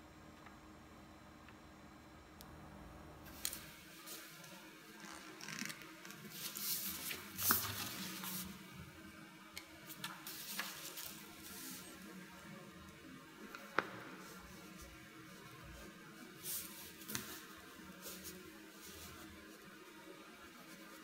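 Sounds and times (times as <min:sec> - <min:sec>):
sketchbook pages flipping: 0:03.3 - 0:08.6, 0:09.9 - 0:12.0, 0:16.4 - 0:19.2.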